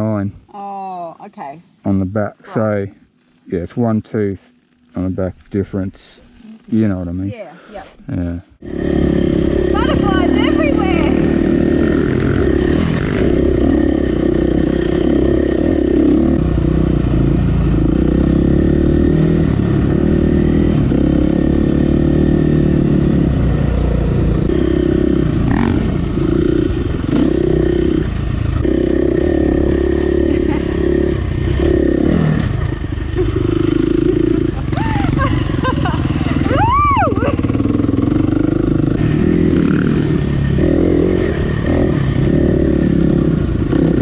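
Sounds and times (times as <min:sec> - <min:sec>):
dirt bike engine revving: 0:08.2 - 0:44.0.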